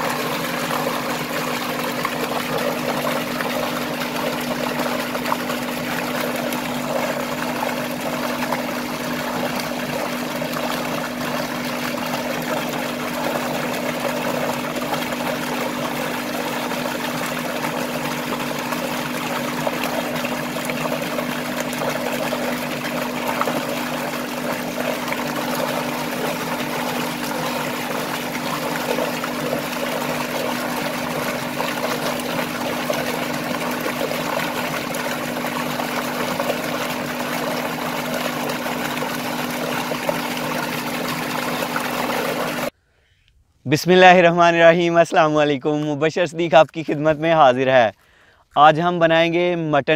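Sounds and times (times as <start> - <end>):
water gushing into tank: 0.0 - 42.7.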